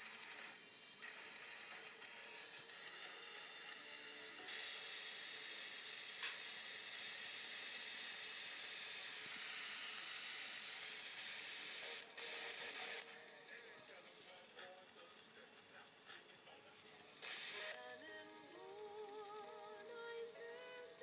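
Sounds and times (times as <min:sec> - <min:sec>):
radio static hiss: 0:11.8 - 0:21.0.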